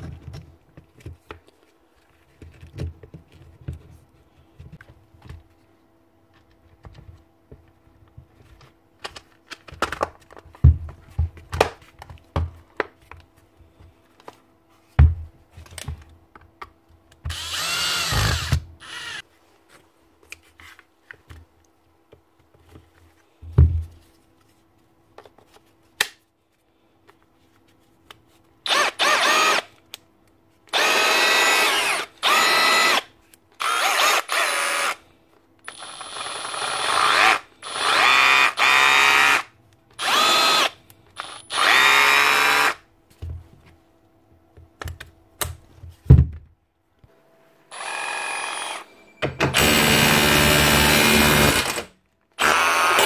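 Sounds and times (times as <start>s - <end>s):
hammer drill running: 17.3s - 19.2s, 28.7s - 29.6s, 30.7s - 33.0s, 33.6s - 35.0s, 35.7s - 39.4s, 40.0s - 42.8s, 47.7s - 48.9s, 49.5s - 53.0s.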